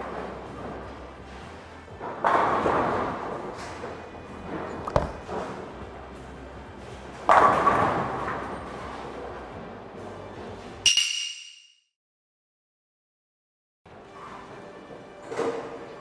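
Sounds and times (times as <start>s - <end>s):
bowling pins crashing: 2.0s - 5.8s, 7.1s - 9.1s
bowling ball thud: 4.4s - 5.7s.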